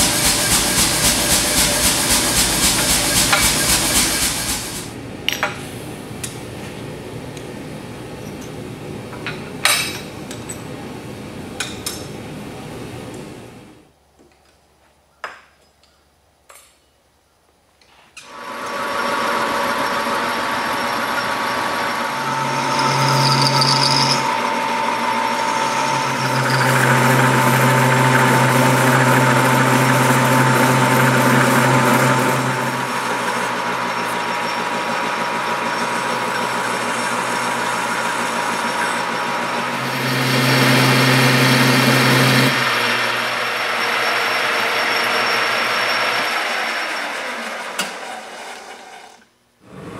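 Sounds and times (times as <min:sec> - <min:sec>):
metal lathe motor whine: 0:18.3 - 0:48.5.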